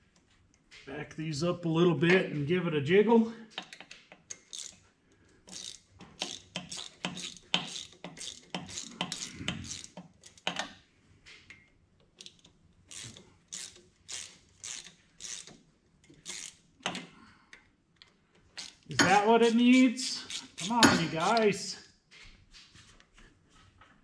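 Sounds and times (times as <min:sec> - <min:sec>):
hand ratchet clicking: 0:03.6 - 0:04.8, 0:05.4 - 0:10.8, 0:12.1 - 0:17.1, 0:18.0 - 0:21.6.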